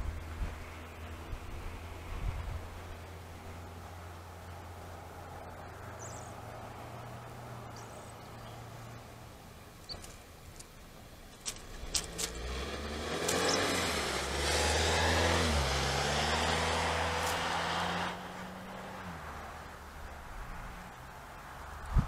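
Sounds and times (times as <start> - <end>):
road noise: 0.0 - 22.0
vehicle engine hum: 0.0 - 22.0
sharp clicks: 9.8 - 12.4, 13.2 - 13.6.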